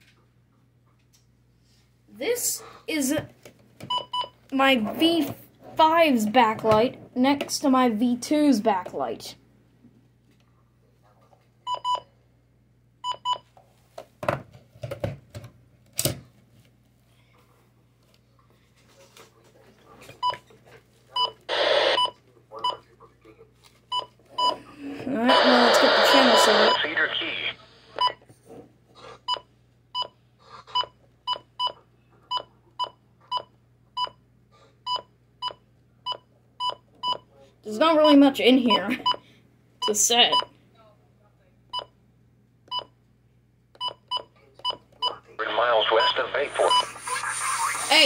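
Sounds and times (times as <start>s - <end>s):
short electronic beeps: 25.4s - 27.0s, 45.9s - 47.0s
keypad beeps: 26.1s - 27.0s.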